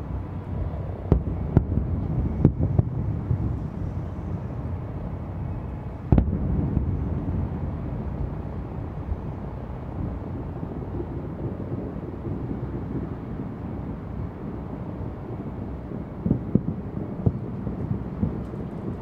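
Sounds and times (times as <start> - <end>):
fireworks bursts rumbling: 0.7 - 8.7, 16.0 - 19.0
sharp firework bang: 6.1 - 7.0.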